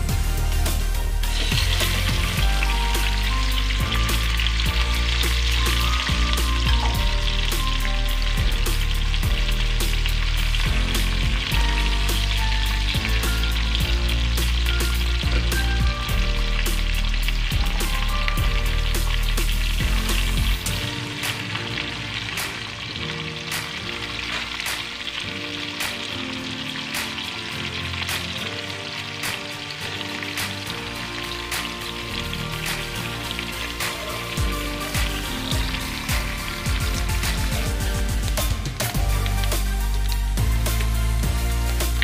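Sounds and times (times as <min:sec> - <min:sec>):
fish sizzling in hot oil: 0:00.0 - 0:42.0.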